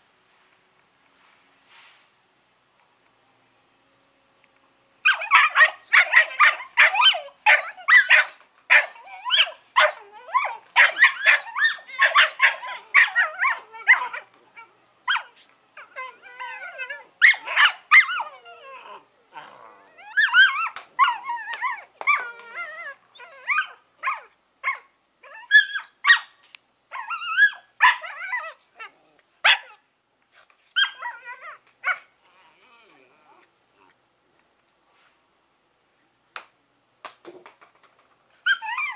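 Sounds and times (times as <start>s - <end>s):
puppies yapping: 5.1s - 14.3s
puppies whining: 5.1s - 25.9s, 38.4s - 38.9s.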